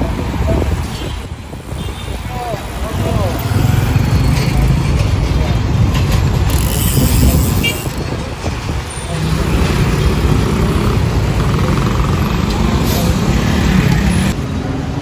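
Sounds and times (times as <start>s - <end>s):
motorcycles passing close by: 2.8s - 5.5s.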